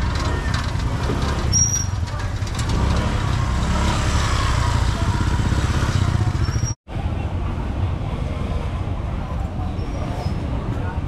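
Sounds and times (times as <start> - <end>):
motorbike engine idling: 4.4 - 6.8.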